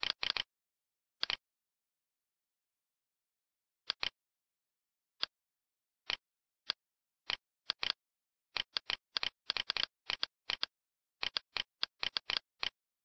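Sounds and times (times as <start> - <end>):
computer mouse buttons clicking: 3.9 - 4.1, 6.1 - 8.0, 8.6 - 12.8.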